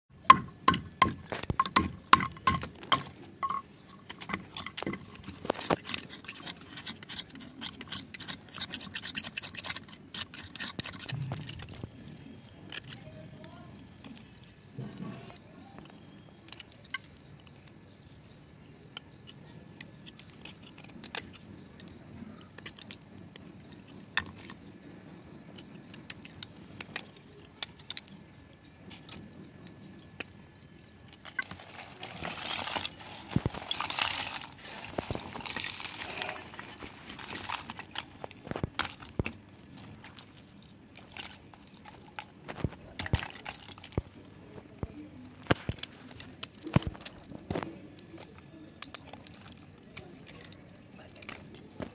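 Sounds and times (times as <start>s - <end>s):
clay cracking and crunching: 0.2s - 51.9s
clay crumbling: 0.2s - 51.9s
knife scraping dry clay: 4.0s - 16.8s.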